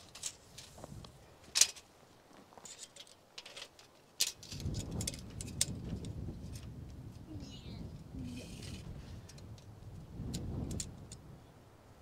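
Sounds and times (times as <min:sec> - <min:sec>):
tape measure clicking and rattling: 0:02.6 - 0:06.0.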